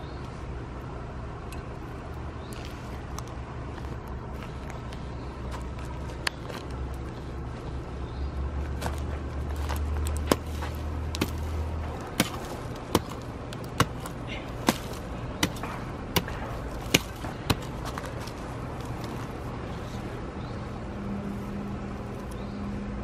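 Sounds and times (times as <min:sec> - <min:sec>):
garden cultivator striking soil: 0:08.8 - 0:20.0.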